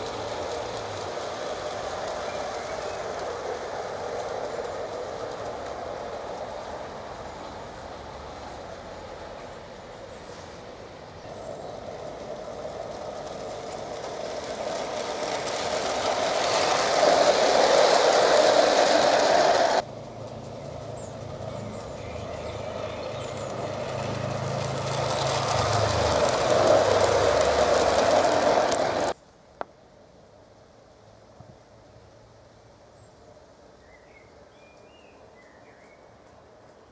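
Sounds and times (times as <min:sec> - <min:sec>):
model train wheels rumbling on rails: 0:00.0 - 0:29.2.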